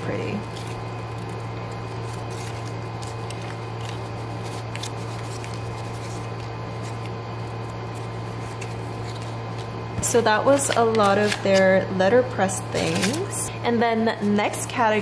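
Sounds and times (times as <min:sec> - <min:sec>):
steady low hum: 0:00.0 - 0:15.0
paper rustling and clicks: 0:00.5 - 0:07.2, 0:10.5 - 0:11.6.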